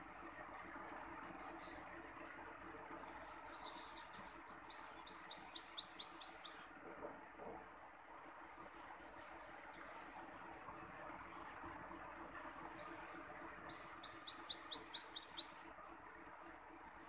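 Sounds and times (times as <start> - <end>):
warbler singing: 3.0 - 6.7, 8.5 - 10.3, 13.7 - 15.6.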